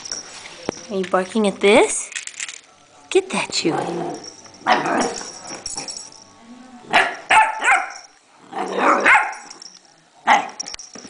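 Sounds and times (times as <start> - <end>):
puppy barking: 6.9 - 8.1, 8.7 - 9.5.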